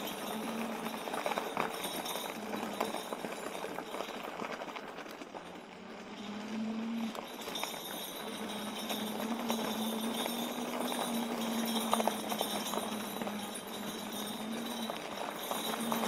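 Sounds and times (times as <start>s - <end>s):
bells jingling: 0.0s - 16.0s
electric motor hum: 5.8s - 16.0s.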